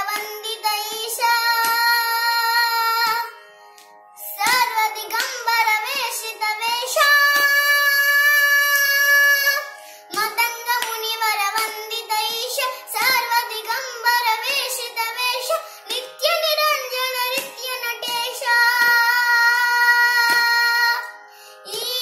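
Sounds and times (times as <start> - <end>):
child singing: 0.0 - 3.3, 4.2 - 22.0
hand slaps keeping beat: 0.1 - 0.5, 1.6 - 2.0, 3.0 - 6.2, 7.3 - 7.8, 10.1 - 12.0, 15.9 - 16.3, 17.1 - 19.2, 20.2 - 20.7.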